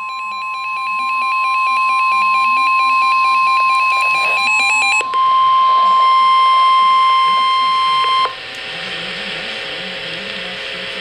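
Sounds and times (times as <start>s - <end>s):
steady high warning alarm tone: 0.0s - 8.5s
fast warbling beeps: 1.3s - 8.4s.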